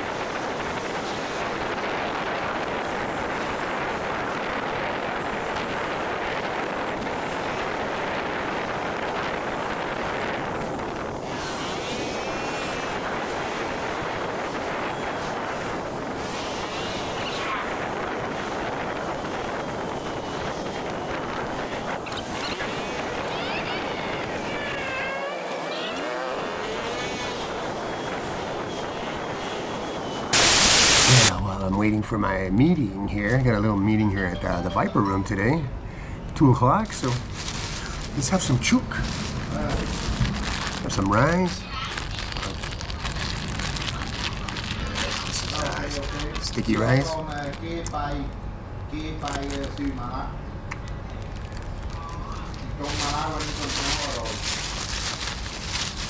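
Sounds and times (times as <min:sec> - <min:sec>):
vehicle engine and tyre noise: 0:00.0 - 0:31.3, 0:36.8 - 0:56.0
wind on microphone: 0:00.0 - 0:31.4
loud hiss: 0:30.3 - 0:31.3.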